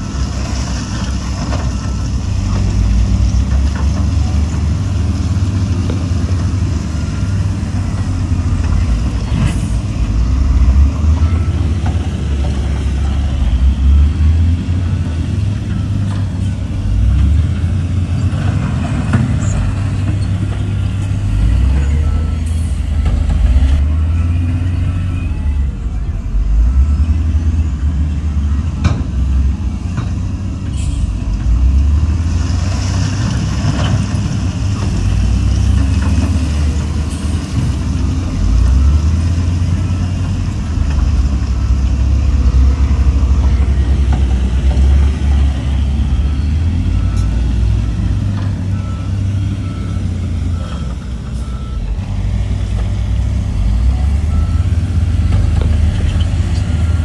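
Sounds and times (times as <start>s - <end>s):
reversing beeps: 0.0s - 2.8s, 6.9s - 14.5s, 15.6s - 16.6s, 21.4s - 29.6s, 36.2s - 52.0s, 53.7s - 57.0s
heavy diesel machinery rumbling: 0.0s - 57.0s.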